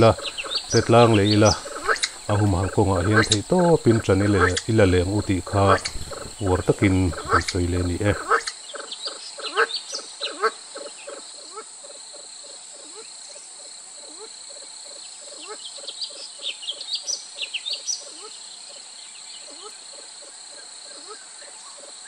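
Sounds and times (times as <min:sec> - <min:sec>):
bird chirping calls: 0:00.0 - 0:11.2
pheasants clucking: 0:00.0 - 0:13.0
high insect drone: 0:00.0 - 0:22.0.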